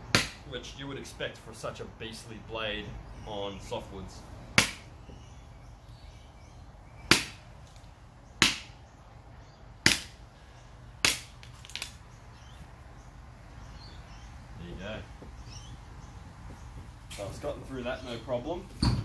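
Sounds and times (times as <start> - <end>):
blade chopping wooden stick: 0.0 - 0.5, 4.6 - 4.9, 7.1 - 7.5, 8.4 - 8.8, 9.8 - 10.2, 11.0 - 11.5.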